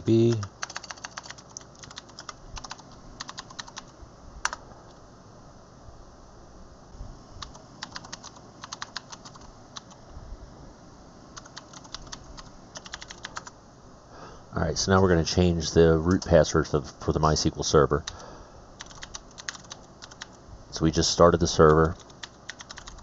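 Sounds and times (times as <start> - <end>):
typing on a computer keyboard: 0.3 - 4.6, 7.4 - 10.0, 11.4 - 13.5, 18.0 - 18.2, 18.8 - 20.4, 21.7 - 23.0.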